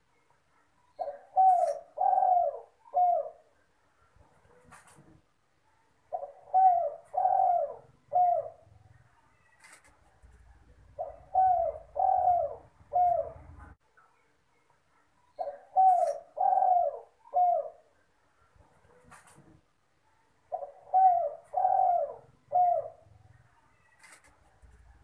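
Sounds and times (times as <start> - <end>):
dove cooing: 1.0 - 3.6, 6.1 - 9.0, 10.4 - 13.8, 15.4 - 18.0, 20.5 - 25.0.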